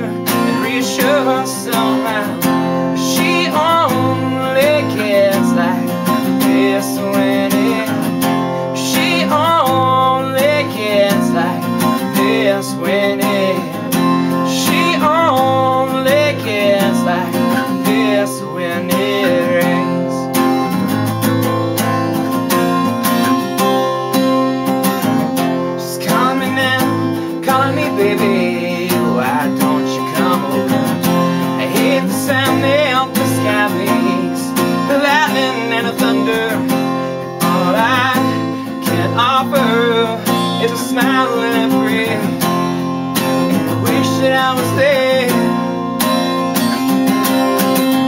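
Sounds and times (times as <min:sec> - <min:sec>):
man singing: 0:00.0 - 0:20.7, 0:25.4 - 0:46.4
acoustic guitar strumming: 0:00.0 - 0:48.0.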